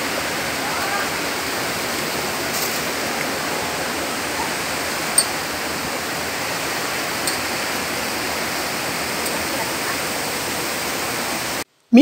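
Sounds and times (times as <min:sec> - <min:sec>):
water rushing in stream and waterfall: 0:00.0 - 0:11.7.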